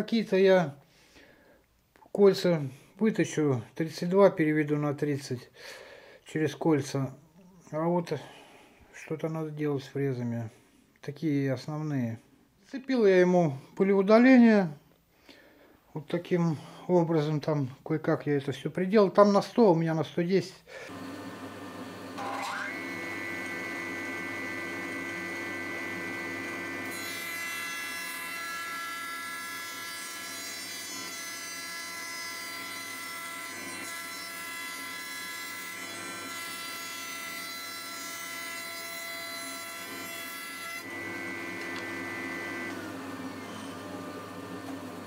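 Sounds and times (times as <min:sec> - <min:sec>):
spindle motor high whine: 0:20.9 - 0:27.0, 0:40.8 - 0:45.0
cutter machining wooden board: 0:20.9 - 0:45.0.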